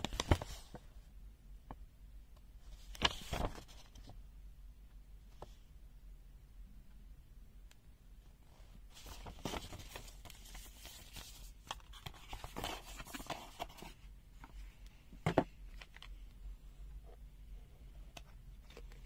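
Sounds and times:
paper and cardboard rustling: 0:02.8 - 0:04.1, 0:08.9 - 0:14.6.

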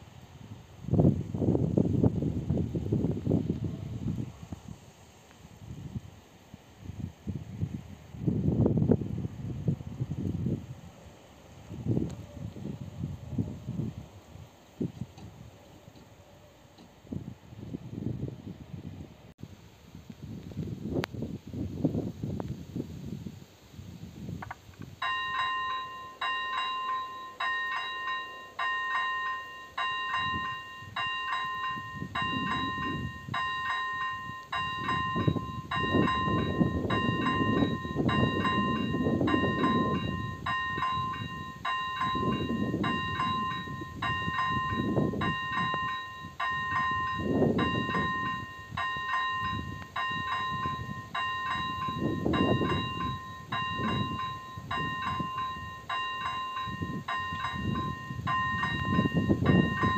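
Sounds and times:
electronic warning bell ringing: 0:25.0 - 0:59.9.

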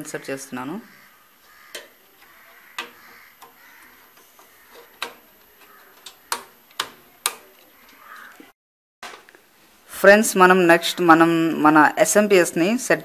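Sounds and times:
retaining clips snapping shut: 0:01.7 - 0:08.4.

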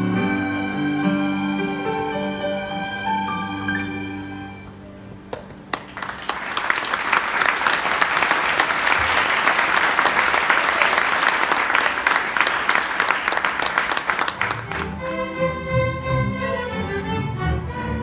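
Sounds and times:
audience applauding: 0:05.6 - 0:15.2.

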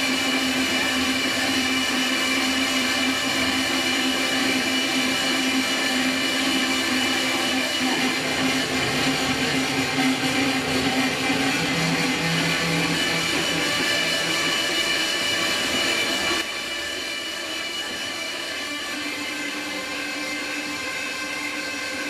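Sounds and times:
harsh electronic noise music: 0:02.8 - 0:16.4.

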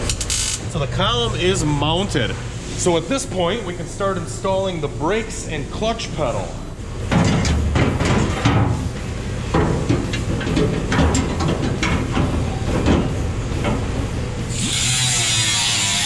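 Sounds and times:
metal parts clunking and rattling: 0:07.0 - 0:14.2
cut-off tool grinding sheet metal: 0:14.5 - 0:16.0.

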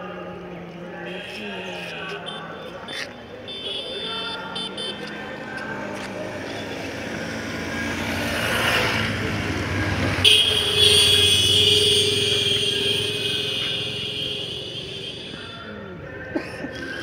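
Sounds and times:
car passing: 0:05.2 - 0:11.3.

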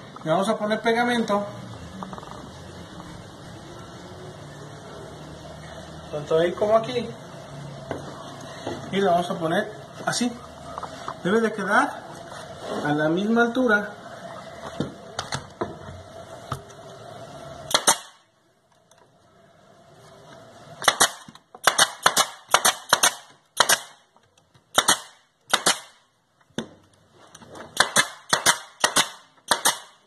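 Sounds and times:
pneumatic nailer firing: 0:17.7 - 0:18.2, 0:20.8 - 0:24.1, 0:24.7 - 0:26.0, 0:27.7 - 0:30.0.

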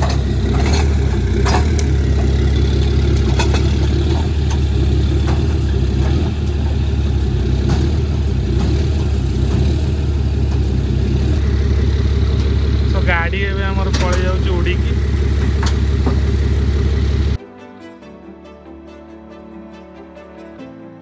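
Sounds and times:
metal clicks and clanks: 0:00.0 - 0:10.8, 0:13.8 - 0:14.5, 0:15.4 - 0:16.3
truck engine rumbling: 0:00.0 - 0:17.4.

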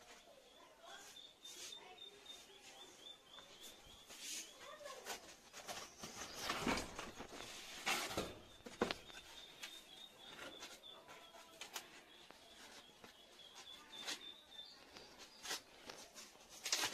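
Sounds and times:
bird chirping: 0:00.0 - 0:16.1
utensils scraping and knocking: 0:04.3 - 0:12.0.

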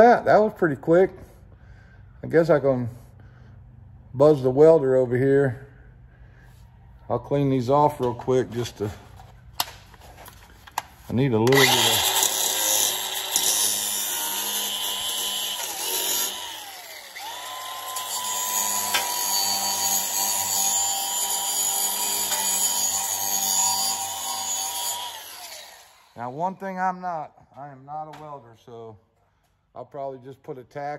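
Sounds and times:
angle grinder on steel: 0:11.4 - 0:26.5.

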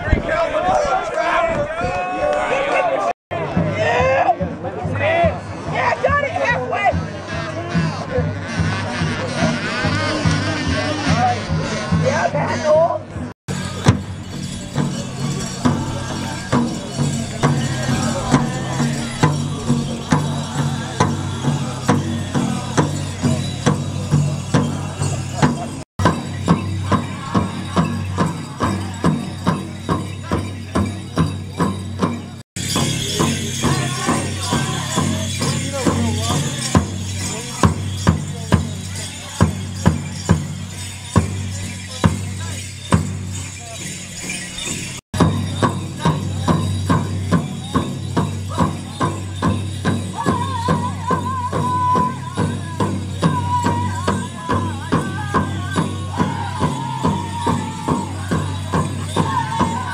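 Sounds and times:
drum beaten in steady rhythm: 0:03.3 - 0:59.9.

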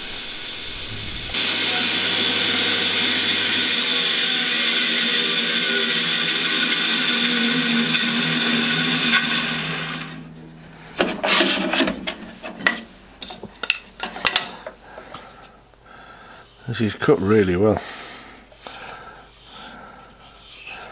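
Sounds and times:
bandsaw humming: 0:00.0 - 0:13.0
hands sliding along saw fence: 0:11.0 - 0:12.9.

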